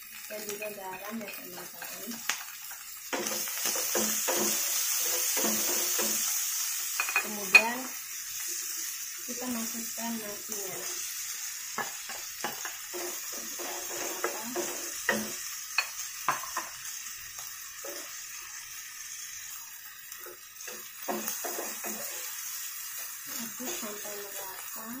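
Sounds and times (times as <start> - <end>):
rice sizzling in a frying pan: 0.0 - 25.0
spatula scraping a pan: 3.2 - 9.0, 11.7 - 16.7, 20.2 - 24.4.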